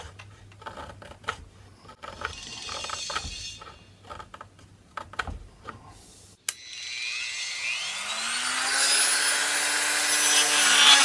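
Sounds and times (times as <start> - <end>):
knife paring wood: 0.0 - 6.0.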